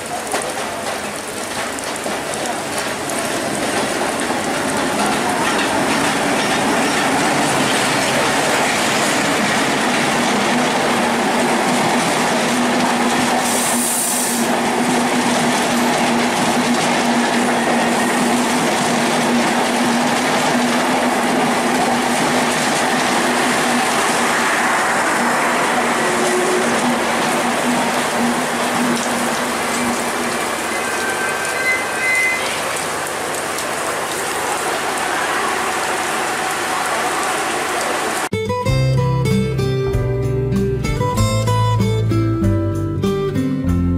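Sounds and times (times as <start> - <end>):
wheels clattering over rail joints: 0.0 - 13.8, 14.4 - 34.8
train passing: 0.0 - 38.3.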